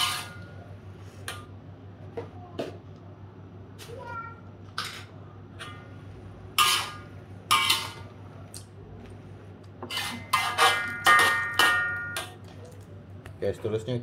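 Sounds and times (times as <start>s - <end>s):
spatula clanking on metal wok: 6.6s - 8.0s, 9.9s - 12.4s.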